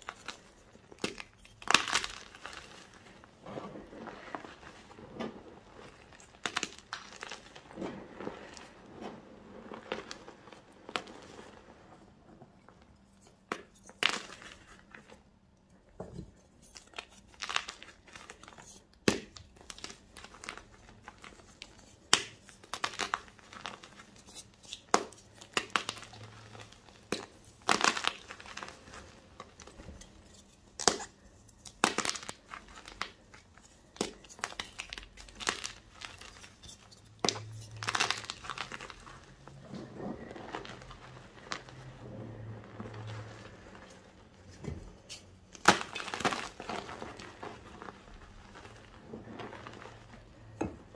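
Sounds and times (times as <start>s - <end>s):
hands crushing chalk: 0.0s - 11.7s, 13.2s - 15.1s, 16.2s - 50.9s.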